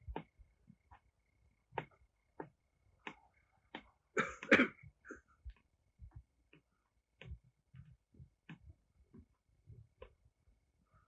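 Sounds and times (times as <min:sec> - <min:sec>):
faint clicks and taps: 0:00.0 - 0:11.0
person coughing: 0:04.2 - 0:05.3.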